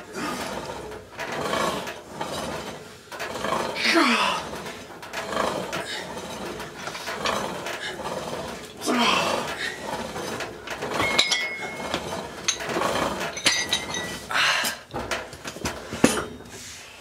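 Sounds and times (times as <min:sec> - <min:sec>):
metallic clinks of weight stack: 0:00.0 - 0:16.5
person breathing hard: 0:14.3 - 0:14.9.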